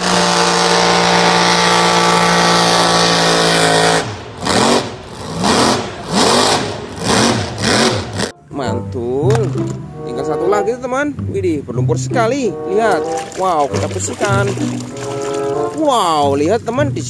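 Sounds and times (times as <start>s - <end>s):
truck engine revving: 0.0s - 8.5s.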